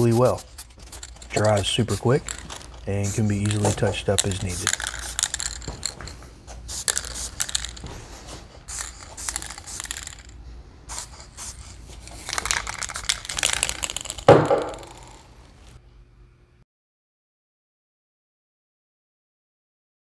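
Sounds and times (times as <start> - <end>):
aerosol can ball rattling: 0.0 - 7.9, 8.7 - 15.2
spray hiss: 6.7 - 13.1
loud thump: 14.3 - 14.8.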